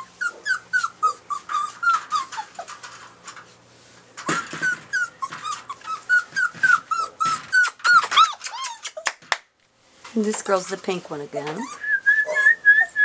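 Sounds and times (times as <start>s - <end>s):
puppy whimpering: 0.0s - 2.8s, 4.2s - 9.2s, 11.6s - 13.0s.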